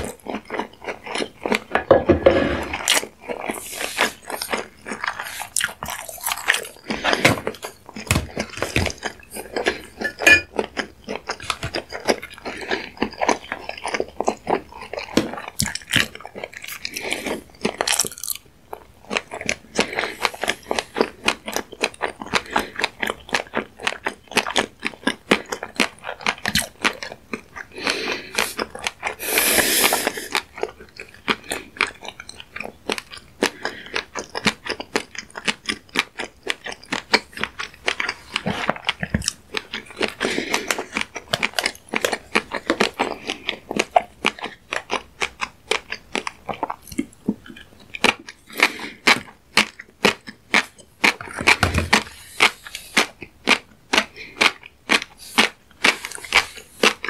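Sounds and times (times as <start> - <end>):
fish roe crackling while chewed: 0.0 - 57.0.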